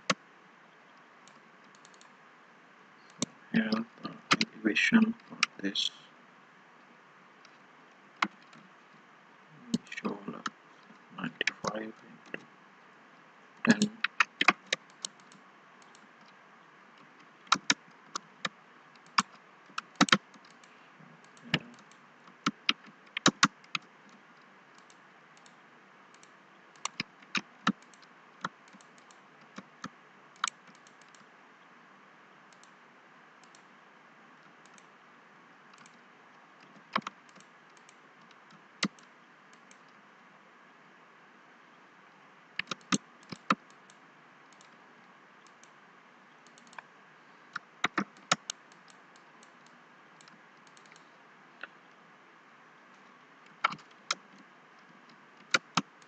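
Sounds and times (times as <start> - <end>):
mouse buttons clicking: 4.3 - 4.5, 13.7 - 16.0, 42.6 - 43.7, 47.8 - 49.5, 53.5 - 54.2
keyboard keys clicking: 17.5 - 20.7, 21.3 - 23.8, 42.6 - 43.7.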